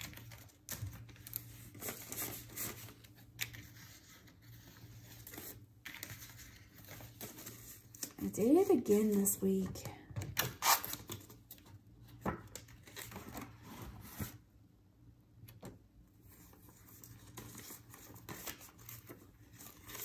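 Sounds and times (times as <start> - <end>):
paper crackles: 0.0 - 9.4, 16.3 - 20.0
paper banknotes rustling: 16.4 - 20.0.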